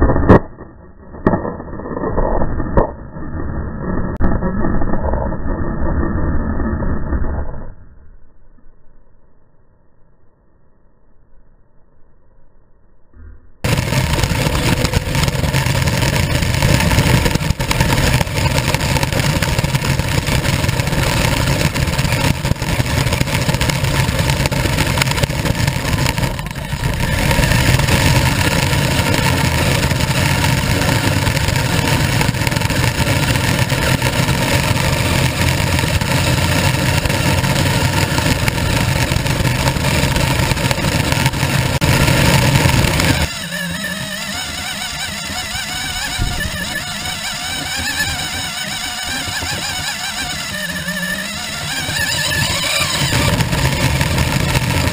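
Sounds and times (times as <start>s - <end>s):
toy car motor running on paving: 13.7s - 54.9s.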